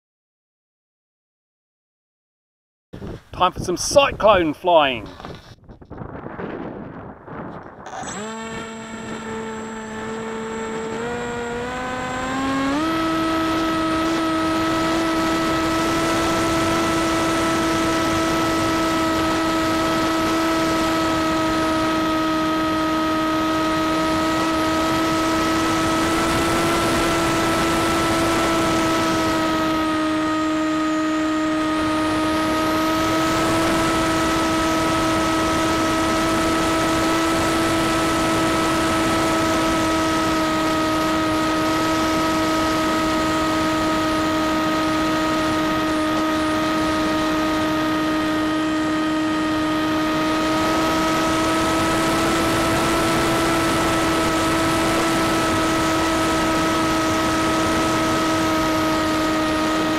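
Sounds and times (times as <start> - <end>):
wind rushing over microphone: 3.0 - 22.8
electric motor and propeller whine: 5.2 - 59.9.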